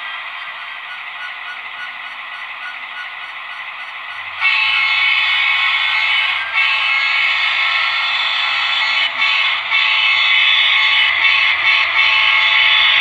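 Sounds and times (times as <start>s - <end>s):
diesel air horn from small speaker: 4.4s - 13.0s.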